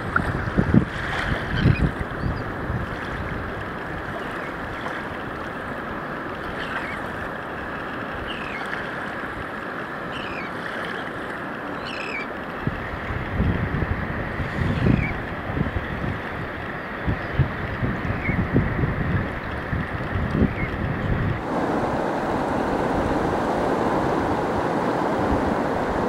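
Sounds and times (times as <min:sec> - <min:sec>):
wind buffeting microphone: 0:00.0 - 0:06.0, 0:12.6 - 0:26.0
surf: 0:00.0 - 0:26.0
wind: 0:00.0 - 0:26.0.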